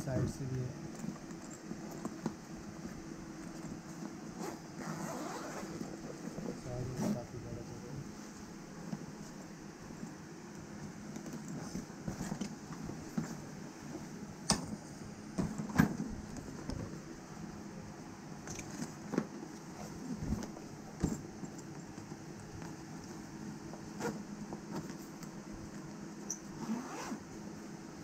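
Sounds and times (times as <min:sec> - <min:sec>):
steady low hum: 0:00.0 - 0:28.0
nylon bag rustling and scraping: 0:04.4 - 0:05.8, 0:26.6 - 0:27.2
zips being pulled: 0:04.4 - 0:05.8, 0:26.5 - 0:27.2.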